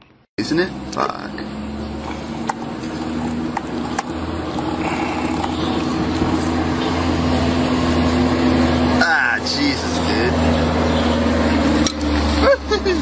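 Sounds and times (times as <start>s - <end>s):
motor hum: 0.5s - 8.9s.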